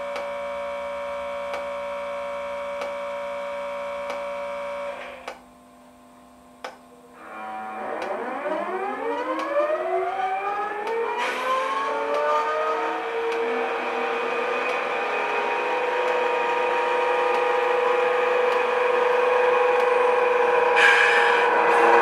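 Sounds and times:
electric locomotive whine: 7.0 - 22.0.

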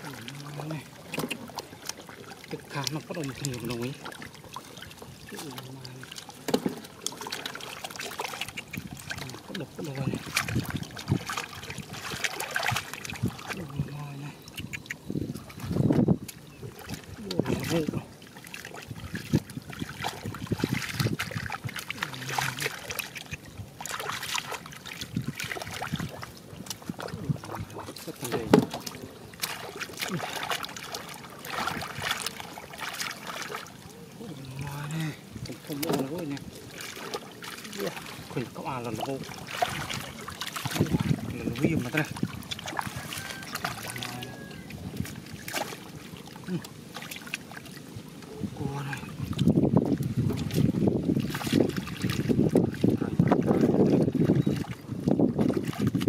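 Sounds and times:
hands splashing in muddy water: 0.0 - 56.0.

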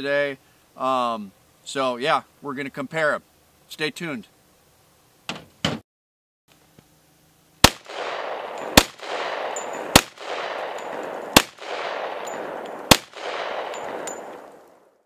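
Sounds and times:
pistol shots with echo: 7.6 - 14.8.

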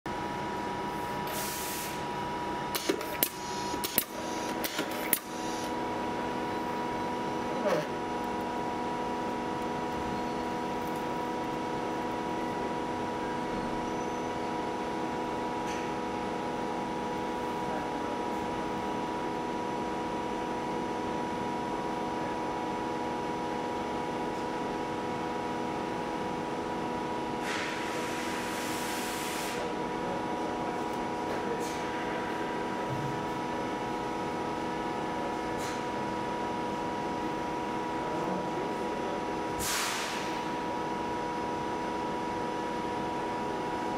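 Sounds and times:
machine hum with high tone: 0.1 - 43.9
sharp mechanical clicks: 2.7 - 5.4
short hiss: 39.6 - 40.3.

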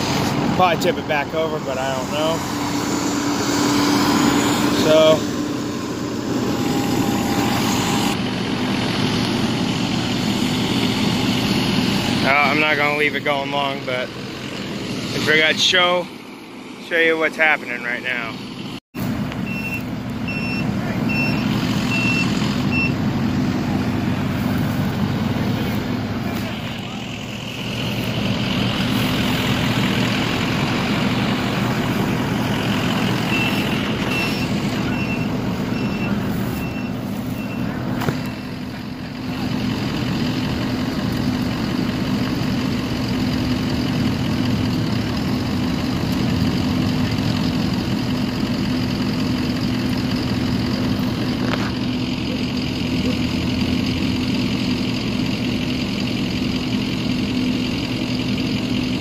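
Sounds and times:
engine idling: 0.0 - 59.0
reversing alarm beeping: 6.4 - 8.2, 19.4 - 23.0, 33.2 - 38.7.

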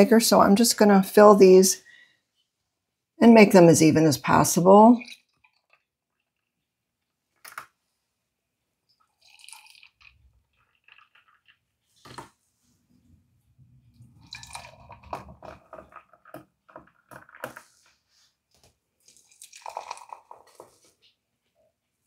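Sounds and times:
liquid pouring: 5.0 - 6.7, 8.9 - 12.3, 13.9 - 17.8, 19.0 - 21.0.

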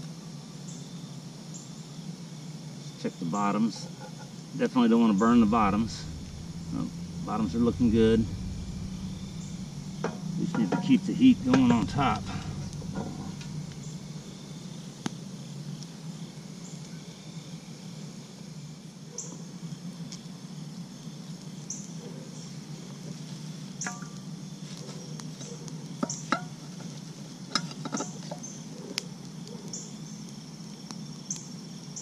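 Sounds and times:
cricket chirping: 0.6 - 32.0
low steady hum: 4.9 - 15.8.

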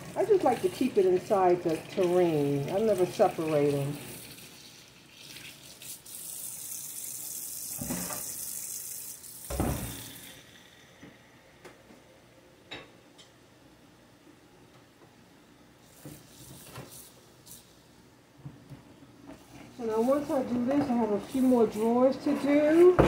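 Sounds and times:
kitchen tap running into sink: 0.0 - 11.0.

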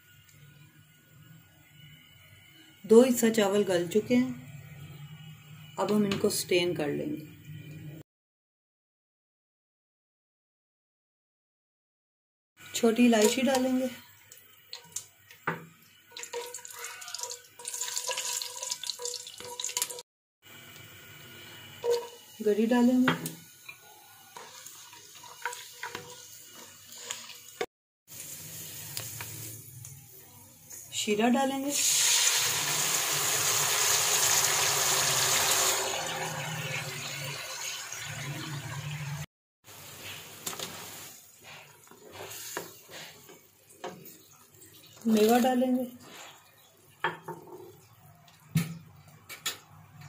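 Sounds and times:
spices sizzling in hot fat: 12.6 - 47.0.

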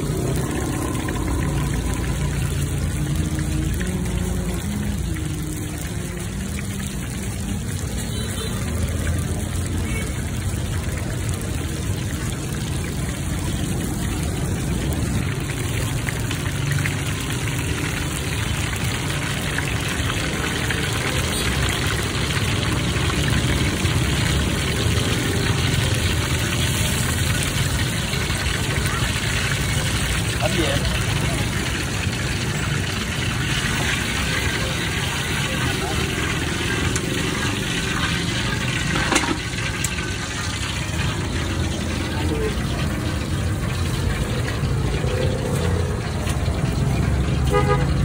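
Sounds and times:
dumplings sizzling in hot oil: 0.0 - 48.0.

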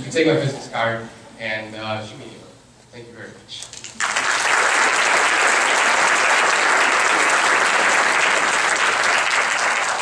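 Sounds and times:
audience applauding: 3.9 - 10.0.

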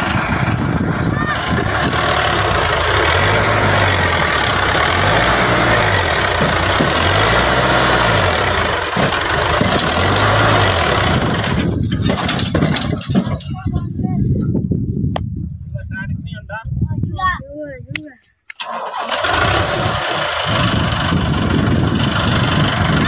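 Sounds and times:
tractor diesel engine revving: 0.0 - 13.5, 18.5 - 23.0.

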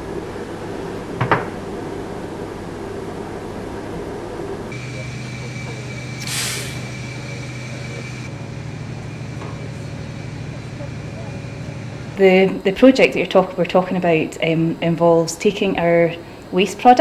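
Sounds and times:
background hum: 0.0 - 17.0
drone with high whine: 4.7 - 12.2
short hiss: 6.2 - 7.1.

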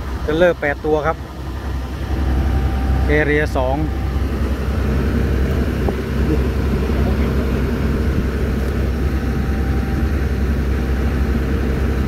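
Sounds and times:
excavator diesel engine running: 0.0 - 12.0.

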